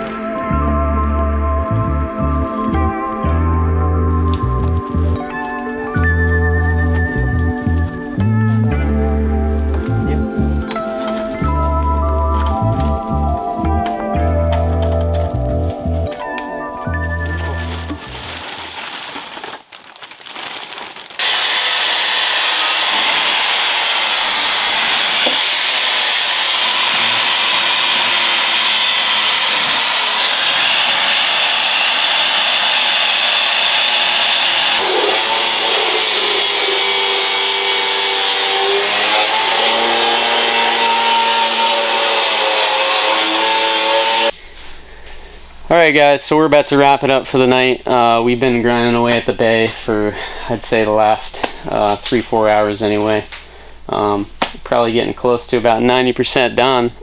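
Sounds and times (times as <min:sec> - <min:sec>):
wire brush grinder on sheet steel: 0:21.2 - 0:44.4.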